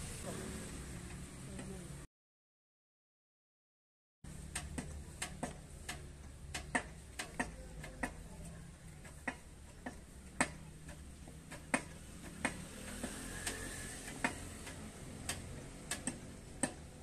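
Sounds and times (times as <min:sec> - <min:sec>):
sharp metallic clicks of jack: 0:04.4 - 0:08.3, 0:09.1 - 0:17.0.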